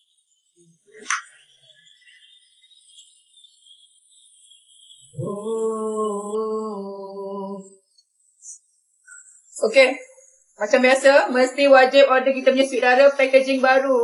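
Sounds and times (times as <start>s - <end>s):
woman humming: 5.2s - 7.7s.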